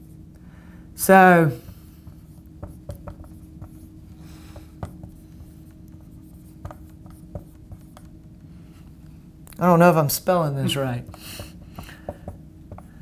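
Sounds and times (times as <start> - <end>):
faint steady hum: 0.0 - 13.0
marker scratching on whiteboard: 2.0 - 4.0, 4.6 - 8.2.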